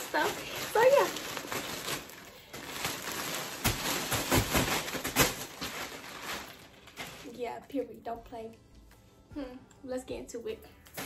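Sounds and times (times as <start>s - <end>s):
plastic bag crinkling: 0.0s - 7.9s.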